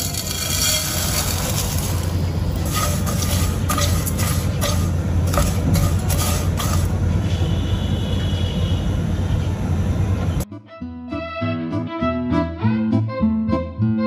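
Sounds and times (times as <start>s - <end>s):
spatula scraping a pan: 0.0s - 7.0s.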